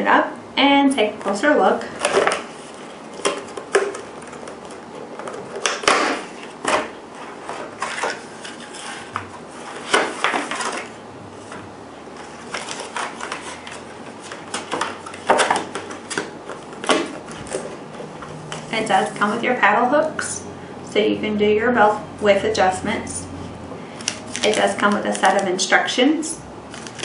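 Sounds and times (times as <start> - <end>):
plastic packaging crackling and clacking: 3.2 - 6.9, 24.0 - 25.5, 26.7 - 27.0.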